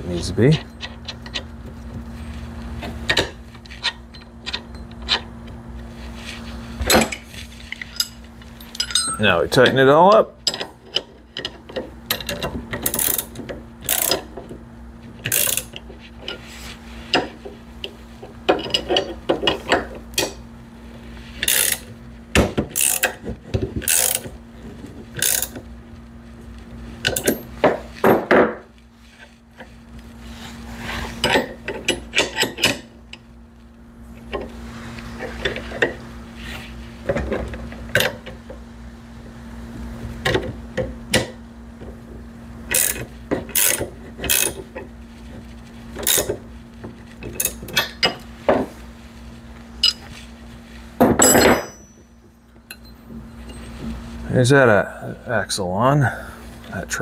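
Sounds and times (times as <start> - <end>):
metal clinks of wrenches: 7.9 - 9.8, 51.2 - 52.1
ratchet wrench clicking: 12.2 - 13.3, 13.9 - 14.2, 15.3 - 15.8, 21.4 - 21.9, 22.8 - 23.2, 23.8 - 24.3, 25.2 - 25.6.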